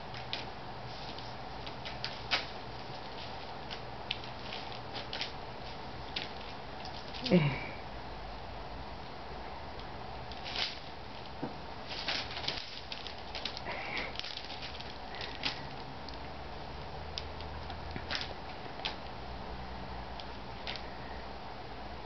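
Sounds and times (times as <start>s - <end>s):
foil wrapping paper crinkling: 0.1s - 7.3s, 10.3s - 15.9s, 17.9s - 19.1s.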